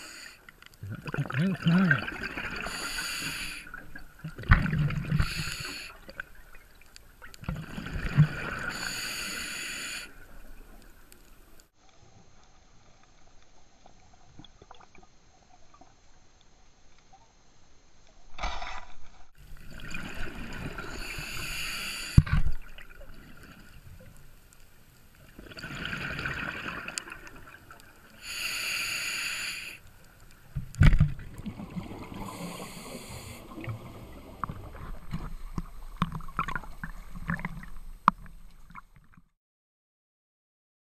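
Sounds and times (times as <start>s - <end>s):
exhaled bubbles: 0.8s - 6.7s, 7.4s - 9.0s, 25.4s - 27.6s, 31.2s - 39.2s
diver breathing through regulator: 2.6s - 3.8s, 5.1s - 6.1s, 8.5s - 10.3s, 20.8s - 22.4s, 28.2s - 29.9s, 32.2s - 34.9s.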